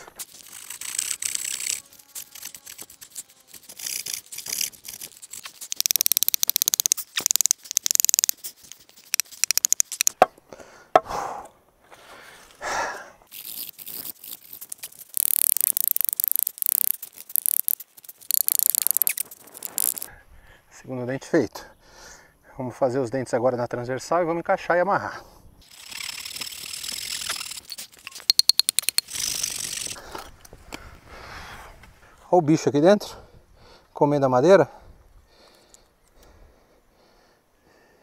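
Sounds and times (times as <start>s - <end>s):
blade rasping on wood: 0.2s - 6.0s.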